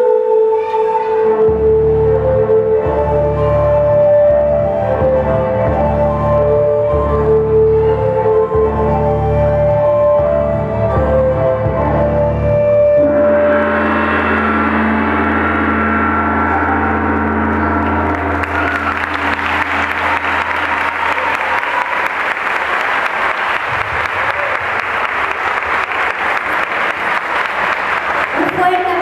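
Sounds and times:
gong-like electronic organ note: 0:13.0 - 0:21.1
audience applauding: 0:17.7 - 0:29.0.

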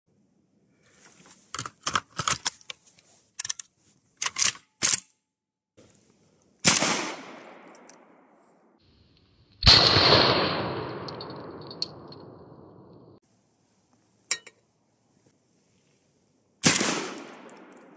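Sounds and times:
metallic gun handling clicks: 0:01.5 - 0:02.8, 0:03.4 - 0:05.2, 0:07.5 - 0:08.0
loud shotgun blast: 0:06.6 - 0:07.7, 0:09.6 - 0:12.4, 0:16.6 - 0:17.6.

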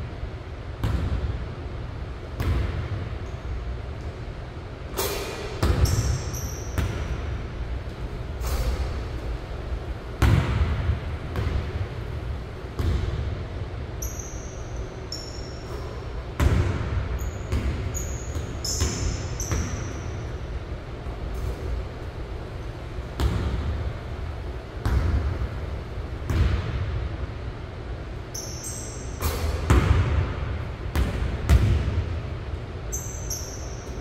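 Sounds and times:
steady low hum: 0:00.0 - 0:34.0
sneaker squeaks: 0:05.0 - 0:07.3, 0:13.9 - 0:20.5, 0:28.2 - 0:29.8, 0:32.9 - 0:34.0
basketball bouncing on hardwood floor: 0:10.2 - 0:11.6, 0:12.8 - 0:13.2, 0:16.4 - 0:16.9, 0:17.5 - 0:19.9, 0:24.8 - 0:25.3, 0:30.9 - 0:32.0.

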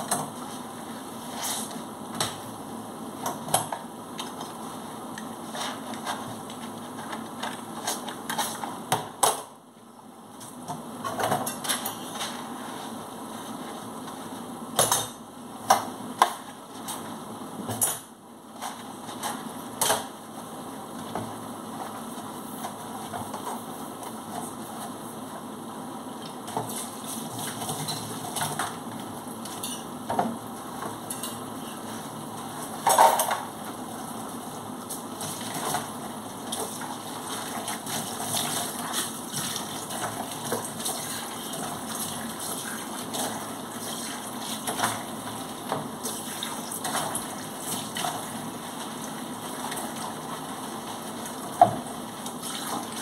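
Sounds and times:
dishes and cutlery clinking: 0:29.5 - 0:29.9, 0:31.1 - 0:31.4.

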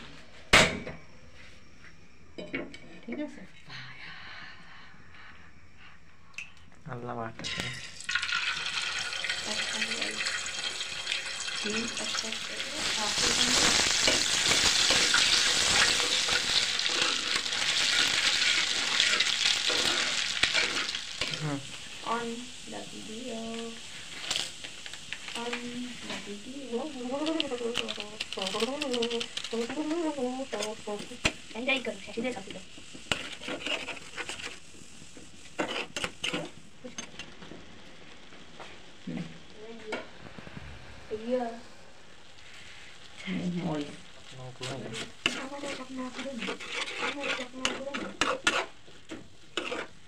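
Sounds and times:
eggs sizzling in a pan: 0:04.6 - 0:50.0
water boiling: 0:07.4 - 0:50.0
spatula scraping metal pan: 0:12.6 - 0:21.4, 0:29.5 - 0:34.7, 0:35.4 - 0:37.2, 0:44.7 - 0:50.0.

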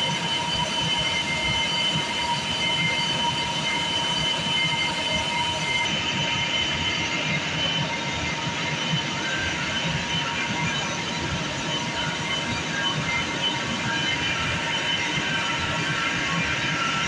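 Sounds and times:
high machinery whine: 0:00.0 - 0:17.0.

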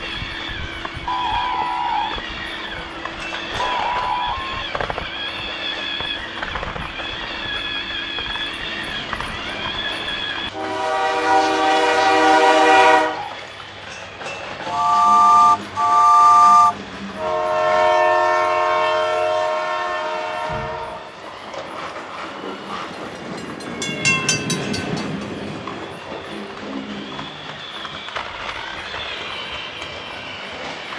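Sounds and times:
toy train horn: 0:01.1 - 0:02.2, 0:10.5 - 0:13.4, 0:14.6 - 0:21.1.

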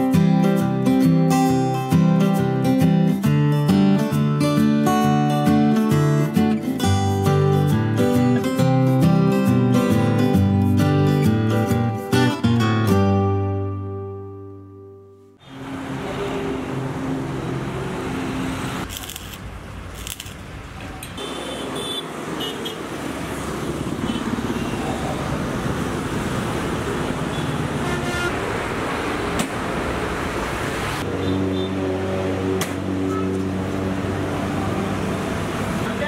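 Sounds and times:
vehicle engines passing: 0:15.4 - 0:36.0
car horn toots: 0:21.2 - 0:22.8, 0:27.3 - 0:28.4, 0:31.1 - 0:31.9.

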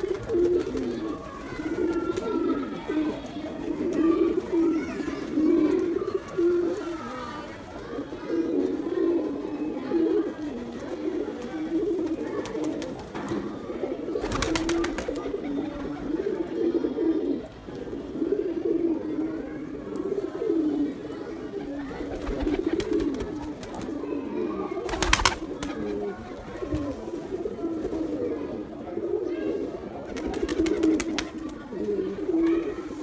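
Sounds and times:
wings flapping: 0:00.0 - 0:02.4, 0:14.2 - 0:15.9, 0:21.8 - 0:23.9, 0:24.8 - 0:26.1, 0:30.1 - 0:31.6
pigeons cooing: 0:00.0 - 0:33.0.

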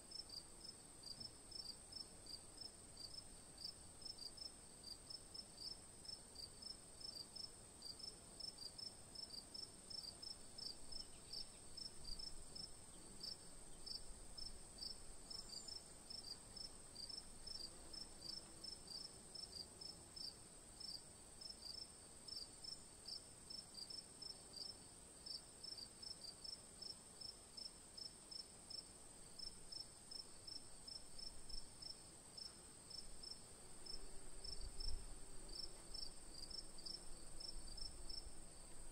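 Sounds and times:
crickets chirping: 0:00.1 - 0:38.9.

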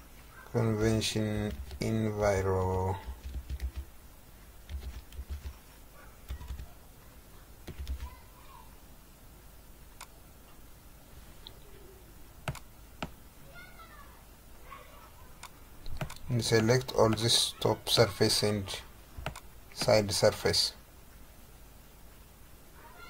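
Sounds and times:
keyboard typing: 0:01.4 - 0:03.9, 0:04.6 - 0:05.6, 0:06.2 - 0:06.7, 0:07.6 - 0:08.2, 0:12.4 - 0:13.2, 0:15.4 - 0:16.2, 0:19.2 - 0:20.0
mouse clicks: 0:12.5 - 0:13.2, 0:15.4 - 0:16.2, 0:19.2 - 0:20.0.

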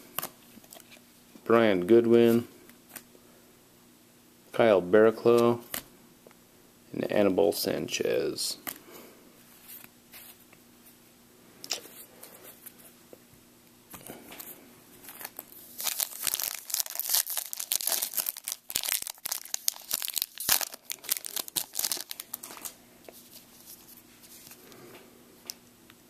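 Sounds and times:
foil wrapper crackling: 0:15.1 - 0:22.8.

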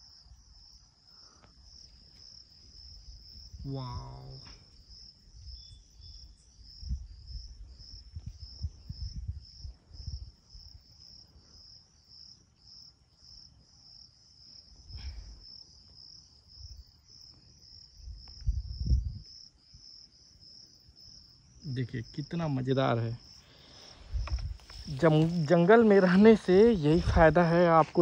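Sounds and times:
insect chirping in pulses: 0:00.0 - 0:28.0
rumbling bumps on microphone: 0:24.1 - 0:25.7.

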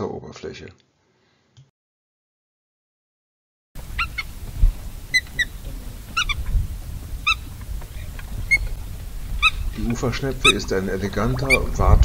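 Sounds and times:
godwit calling: 0:03.8 - 0:12.0
low background rumble: 0:03.8 - 0:12.0.

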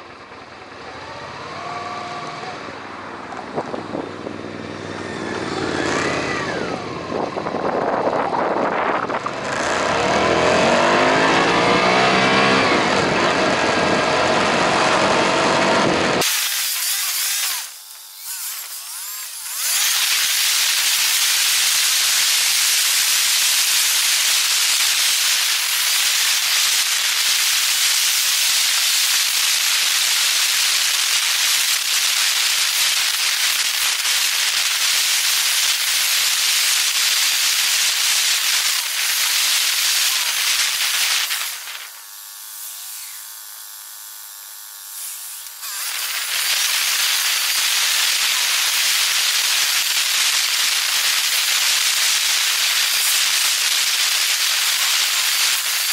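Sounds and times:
sped-up wind and road hiss: 0:00.0 - 0:17.9, 0:19.2 - 0:43.6, 0:45.0 - 0:55.9.

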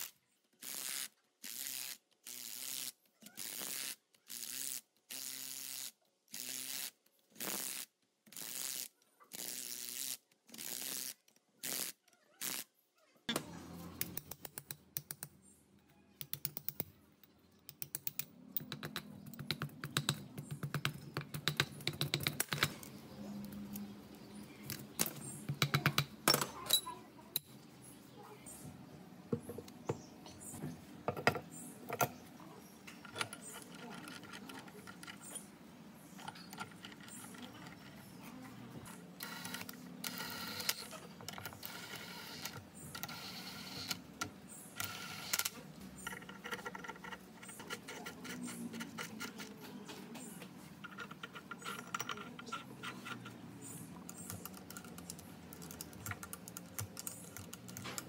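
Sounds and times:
metal taps and knocks: 0:31.1 - 0:32.2.

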